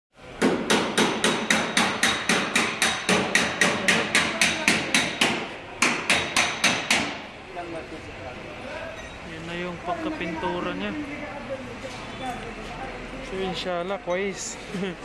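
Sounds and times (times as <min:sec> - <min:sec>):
hammer striking metal: 0:00.4 - 0:07.3.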